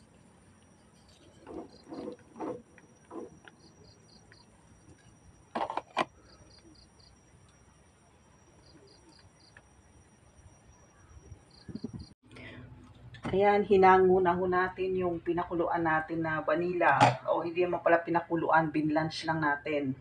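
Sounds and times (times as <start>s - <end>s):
high insect drone: 0.0s - 12.2s
insects chirping in pulses: 0.0s - 12.2s.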